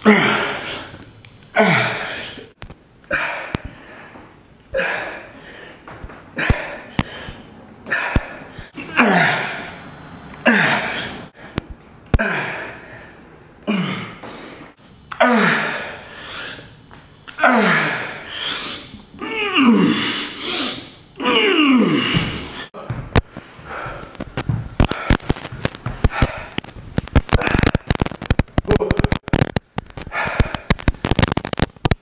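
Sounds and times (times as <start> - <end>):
man grunting with effort: 0.0 - 0.9, 1.6 - 2.5, 7.8 - 9.8, 10.4 - 11.3, 15.2 - 16.0, 17.4 - 18.2, 19.2 - 23.0, 28.7 - 29.2.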